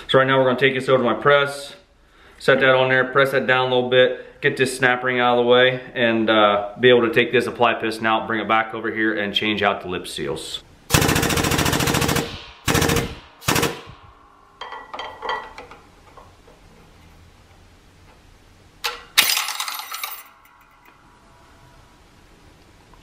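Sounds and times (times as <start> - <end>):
air press rattling bursts: 10.9 - 14.1.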